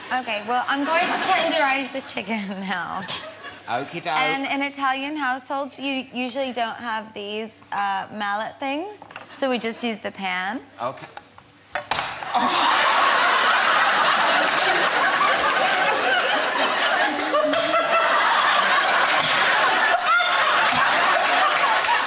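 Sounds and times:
studio audience laughing: 0.4 - 3.8, 12.3 - 22.0.

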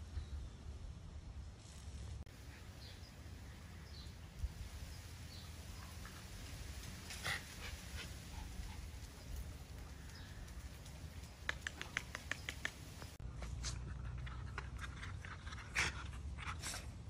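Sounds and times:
dog nails clicking on concrete: 9.4 - 13.2.

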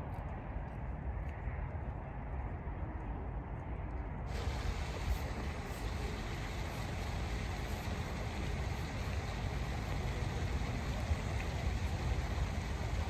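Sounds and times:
low fluctuating rumble: 1.0 - 13.0
bright hiss: 4.3 - 10.6
hiss: 4.3 - 13.0.

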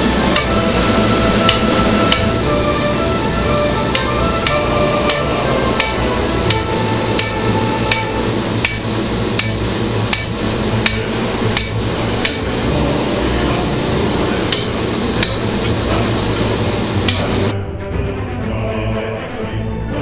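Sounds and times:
hammer striking steel on anvil: 0.3 - 2.4, 3.9 - 12.6, 14.5 - 15.8, 17.1 - 17.4.

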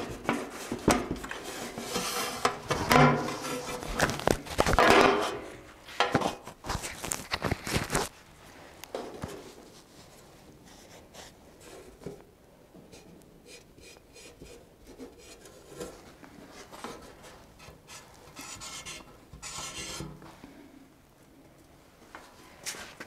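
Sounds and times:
steel panel scraping metal: 17.6 - 20.2.

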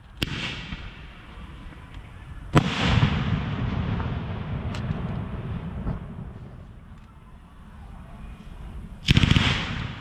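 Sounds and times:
firework launch crack: 0.0 - 7.0, 9.0 - 10.0
rumbling echo: 0.2 - 10.0.

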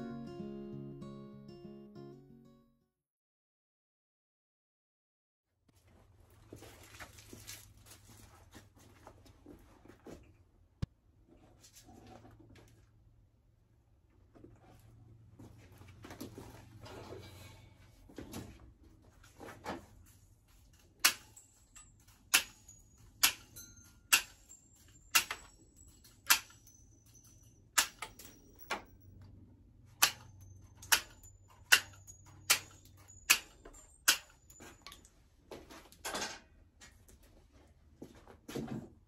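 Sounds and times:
hammer driving nails into wood: 25.1 - 25.5, 27.8 - 28.2, 30.0 - 34.6.

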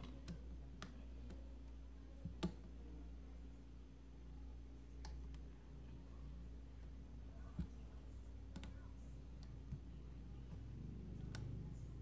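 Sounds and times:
steady low hum: 0.0 - 12.0
small clicks and taps: 7.4 - 11.6.

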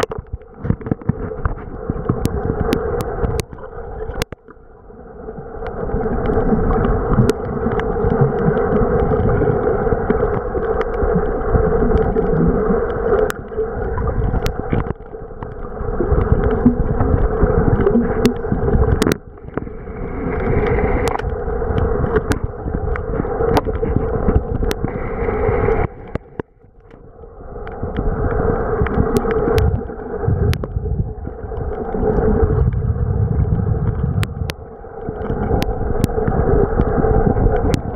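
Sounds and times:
muffled underwater rush: 0.0 - 37.9.

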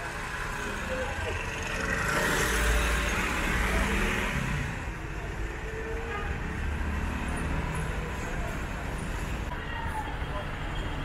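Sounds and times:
cars driving past: 0.0 - 5.7.

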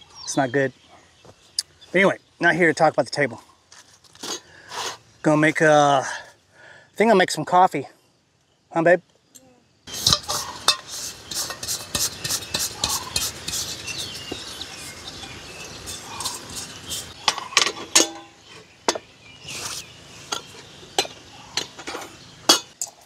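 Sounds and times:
metal mugs and utensils clinking: 10.0 - 14.0, 15.6 - 19.0, 20.3 - 23.0.

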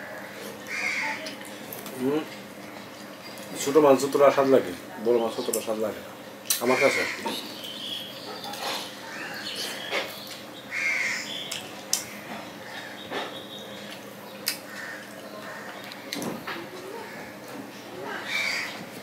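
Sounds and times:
bird calling: 6.6 - 17.4, 18.0 - 18.9.

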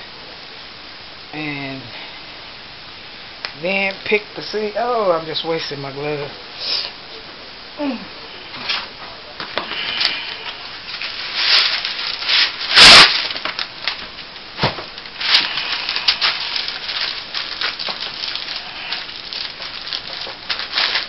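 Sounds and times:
paper crinkling and rustling: 9.5 - 21.0.

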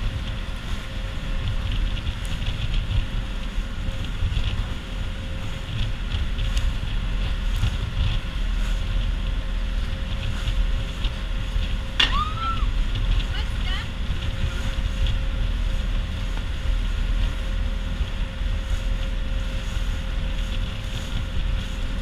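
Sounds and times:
boat engine hum: 0.0 - 22.0
wind buffeting the microphone: 0.0 - 22.0.

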